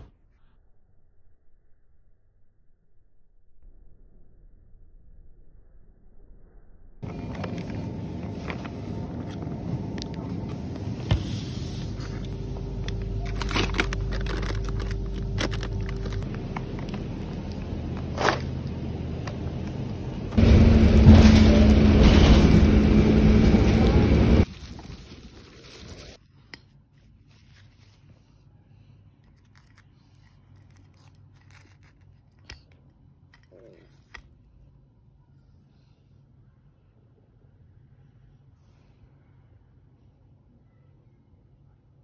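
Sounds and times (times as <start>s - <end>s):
bus engine drone: 7.0s - 25.0s
freezer low hum: 7.0s - 42.0s
packages clicking and rustling: 11.8s - 21.2s.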